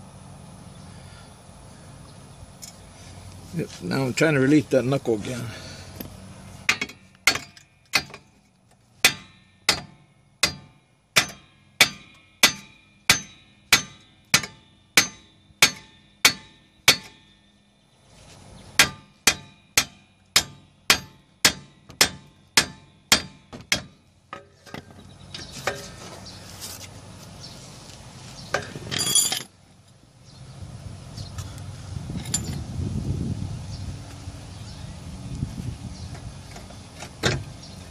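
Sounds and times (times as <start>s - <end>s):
metal clatter: 28.5s - 29.5s.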